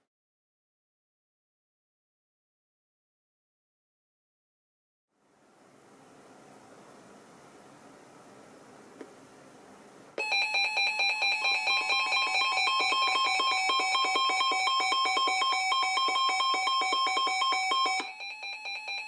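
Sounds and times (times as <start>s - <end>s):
rapid pulsing alarm beeps: 10.2s - 19.0s.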